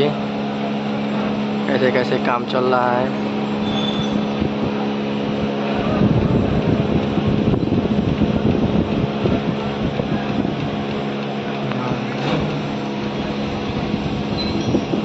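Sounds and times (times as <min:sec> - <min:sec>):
engine humming steadily: 0:00.0 - 0:15.0.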